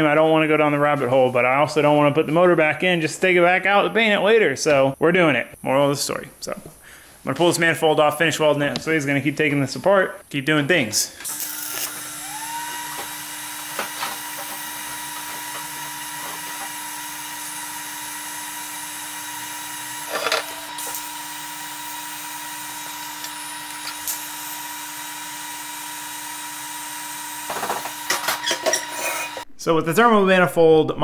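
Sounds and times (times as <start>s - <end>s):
welding arc hum and hiss: 4.6s - 29.5s
welding arc crackle: 11.2s - 28.2s.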